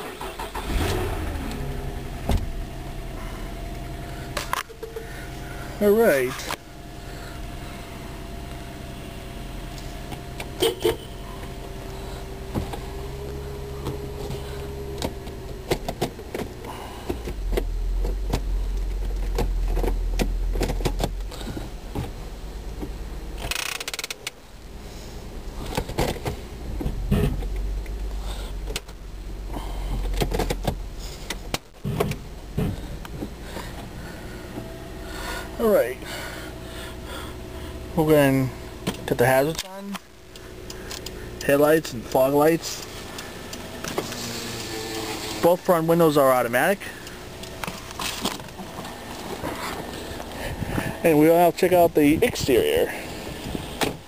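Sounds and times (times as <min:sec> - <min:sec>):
car engine idling: 0:00.0 - 0:54.0
clicks and knocks in car: 0:13.8 - 0:22.2, 0:25.6 - 0:28.0, 0:29.9 - 0:33.9.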